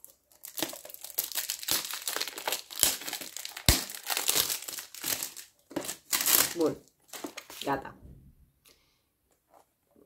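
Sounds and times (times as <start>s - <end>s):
packaging crinkling and rustling: 0.0s - 7.8s.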